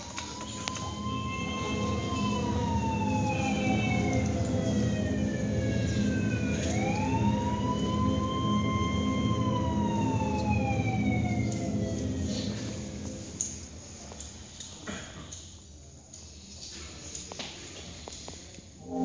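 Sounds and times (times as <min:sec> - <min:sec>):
siren wailing over loudspeakers: 0:00.1 - 0:13.1
steady low drone: 0:00.6 - 0:13.7, 0:18.8 - 0:19.0.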